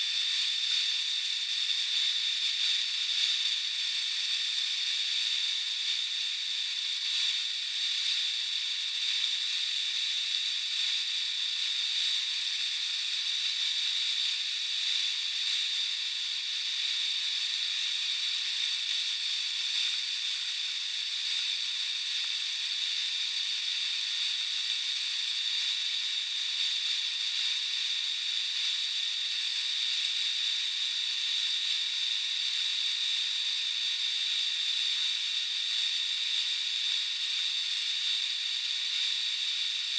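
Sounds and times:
metal lathe hiss and whine: 0.0 - 39.9.

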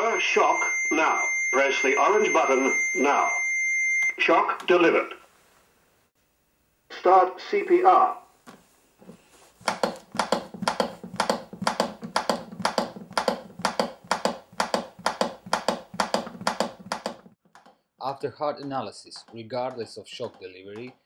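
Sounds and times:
manikin clicking under compressions: 9.0 - 21.0.

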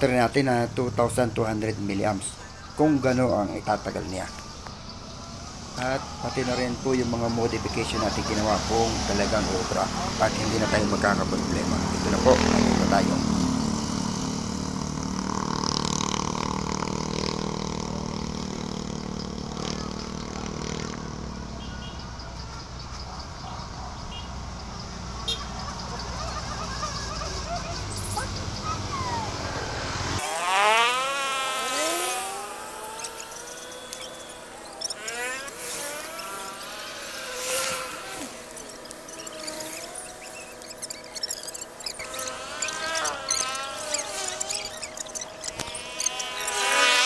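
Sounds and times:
electric motor droning: 29.4 - 47.0.

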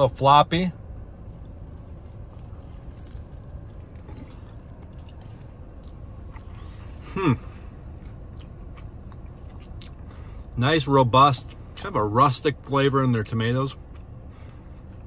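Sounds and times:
car cabin hum: 0.0 - 8.8
person chewing: 2.9 - 10.6, 13.8 - 15.0
person humming mmm: 7.0 - 7.6.

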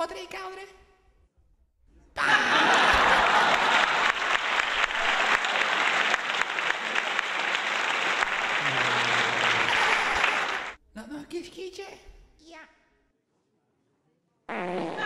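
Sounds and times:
audience applauding: 2.3 - 10.8.

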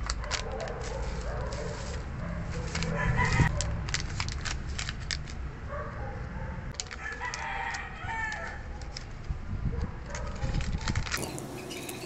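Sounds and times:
rooster crowing: 7.0 - 8.7.

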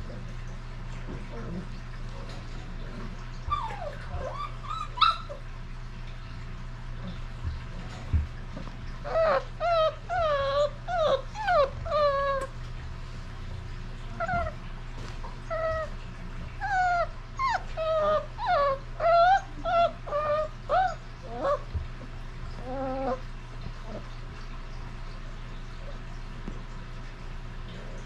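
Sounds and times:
steady low hum: 0.0 - 28.0
puppy whining and yipping: 3.5 - 5.5, 9.0 - 12.6, 14.2 - 14.6, 15.4 - 21.9, 22.5 - 23.2.

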